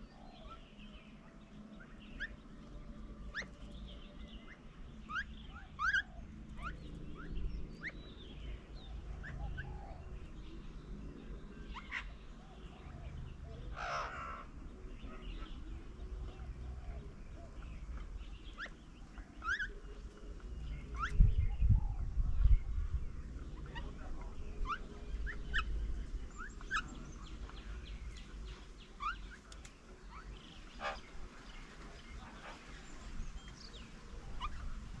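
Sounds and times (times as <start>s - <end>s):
birds chirping and whistling: 0.0s - 35.0s
wind rumble on microphone: 20.2s - 28.8s.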